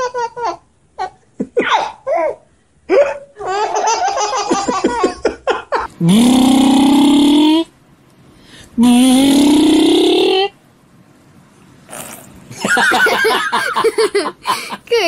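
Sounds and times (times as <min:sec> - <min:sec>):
baby laughing: 0:00.0 - 0:05.6
long held vocal tone: 0:06.0 - 0:07.7, 0:08.8 - 0:10.6.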